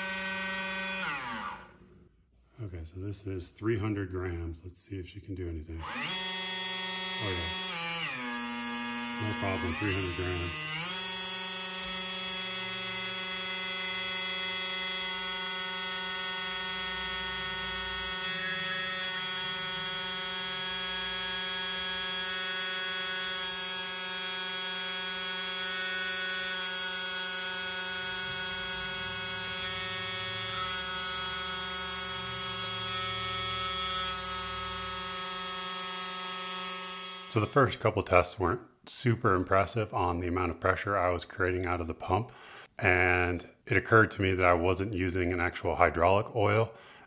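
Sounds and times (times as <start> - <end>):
small electric motor whining: 0.0 - 1.8, 5.8 - 37.6.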